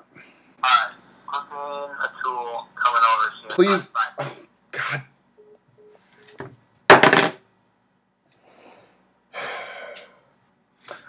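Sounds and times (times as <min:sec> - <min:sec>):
man exhaling: 0:08.5 - 0:10.2
man sighing: 0:09.4 - 0:10.2.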